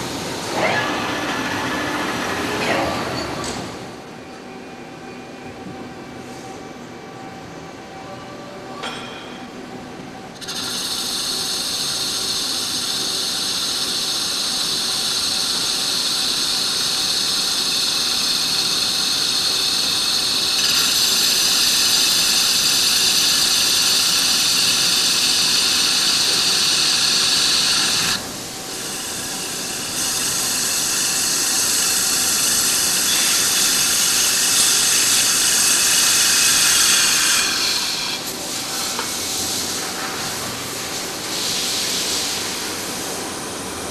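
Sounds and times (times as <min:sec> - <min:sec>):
lathe cutting high-pitched: 0:10.4 - 0:43.7.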